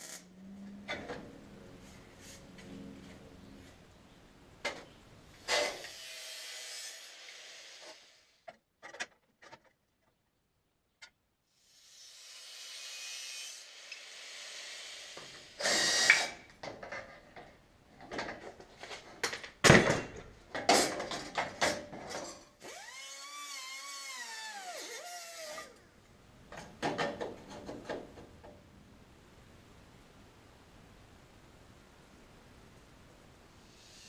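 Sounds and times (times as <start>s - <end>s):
hiss: 5.4s - 8.4s, 11.5s - 16.4s, 33.6s - 34.0s
small power tool motor whining: 22.6s - 25.8s
sharp knocks and clatter: 26.5s - 28.6s.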